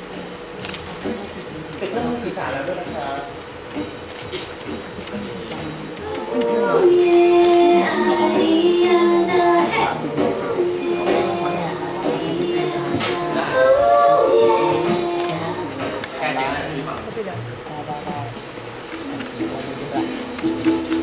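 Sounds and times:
small acoustic band: 0.0 - 21.0
woman singing: 6.1 - 16.0.

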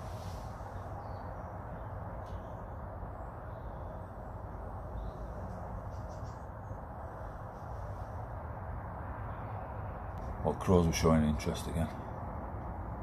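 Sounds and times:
faint bird calls: 0.0 - 8.0
low outdoor rumble: 0.0 - 13.0.

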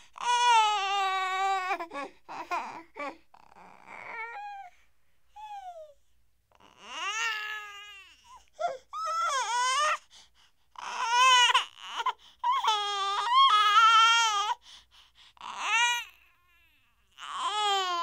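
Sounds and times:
baby crying: 0.2 - 4.8, 6.6 - 10.0, 10.8 - 14.6, 15.4 - 16.3, 17.1 - 18.0.

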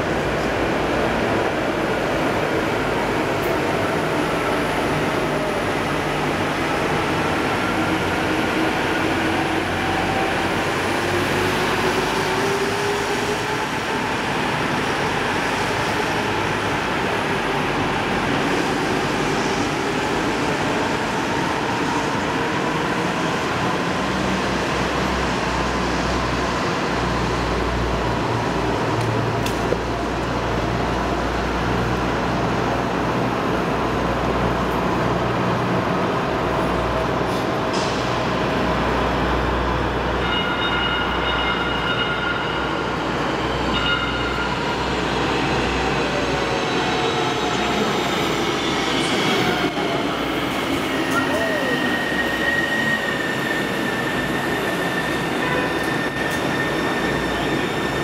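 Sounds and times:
transit station rumble: 0.0 - 58.0.

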